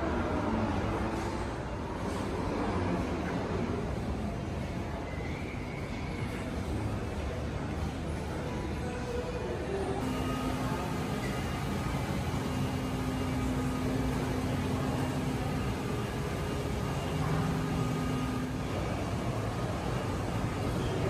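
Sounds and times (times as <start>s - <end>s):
faint steady tones: 9.9s - 21.0s.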